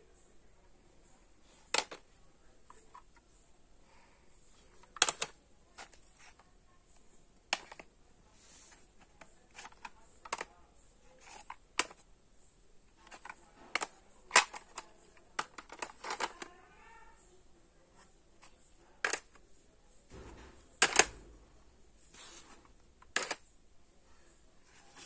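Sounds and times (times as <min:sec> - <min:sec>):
plastic cassette cases clacking: 0:01.7 - 0:02.0, 0:04.7 - 0:06.4, 0:07.5 - 0:07.9, 0:09.1 - 0:10.5, 0:11.2 - 0:12.0, 0:13.0 - 0:16.5, 0:19.0 - 0:19.4, 0:20.5 - 0:21.3, 0:22.4 - 0:23.5.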